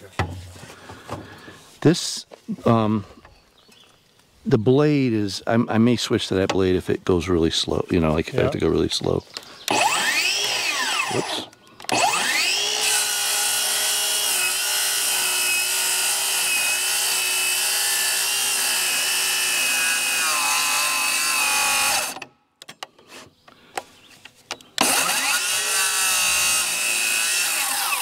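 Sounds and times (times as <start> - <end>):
electric motor whining: 9.7 - 22.2, 24.8 - 28.0.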